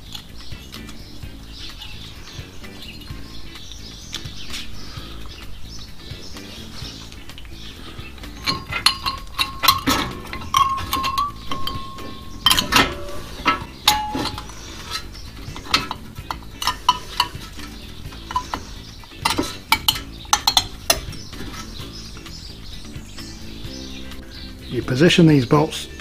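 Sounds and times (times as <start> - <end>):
metal clicks and clinks of brake parts: 8.2 - 21.9.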